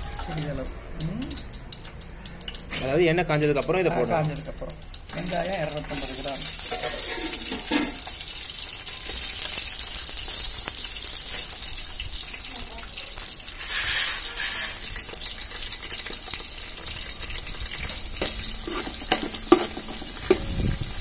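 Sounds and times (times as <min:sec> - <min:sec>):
onions sizzling in hot oil: 0:00.0 - 0:21.0
metal spatula scraping pot: 0:05.2 - 0:08.3, 0:13.5 - 0:20.7.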